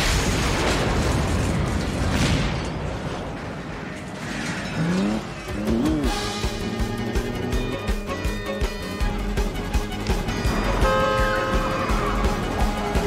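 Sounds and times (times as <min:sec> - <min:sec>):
explosion rumble: 0:00.0 - 0:04.8
truck engine revving: 0:04.1 - 0:13.0
film music: 0:04.8 - 0:13.0.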